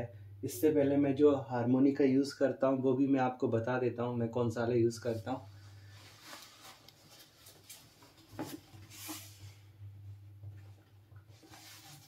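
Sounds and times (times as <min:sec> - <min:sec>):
low hum: 0:00.0 - 0:02.3
faint rustling: 0:05.0 - 0:09.6.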